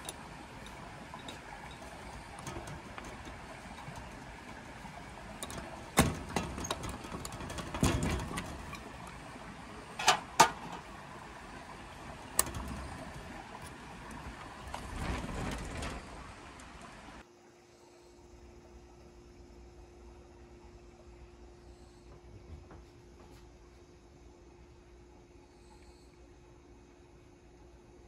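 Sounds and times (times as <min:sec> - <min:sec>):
padlock metal clicks and clacks: 0:12.4 - 0:13.2.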